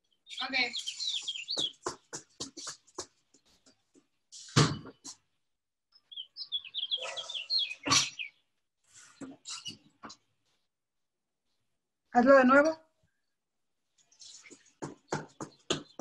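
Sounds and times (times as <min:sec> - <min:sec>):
small birds chirping: 0:00.0 - 0:10.7, 0:13.2 - 0:16.0
heavy thumps on tiled floor: 0:01.6 - 0:03.2, 0:14.5 - 0:16.0.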